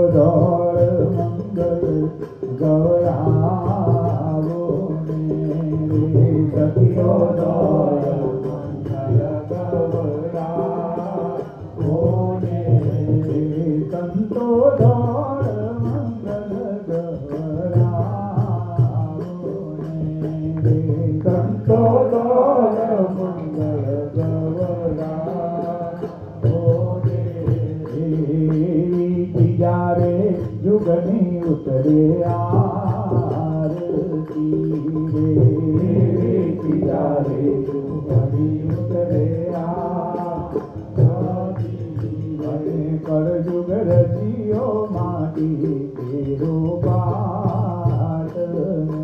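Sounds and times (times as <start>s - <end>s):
devotional hymn singing: 0.0s - 49.0s
musical accompaniment: 0.0s - 49.0s.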